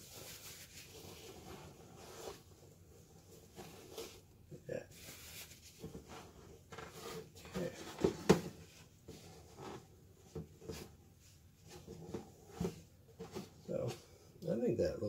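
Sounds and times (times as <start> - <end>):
paper towel rubbing plastic: 0.0 - 4.3, 4.9 - 7.7.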